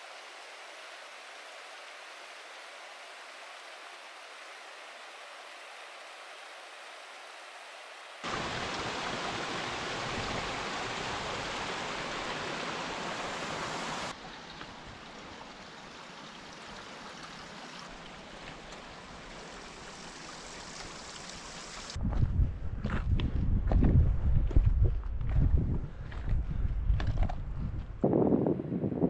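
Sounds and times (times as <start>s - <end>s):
running water rushing: 0.0s - 22.0s.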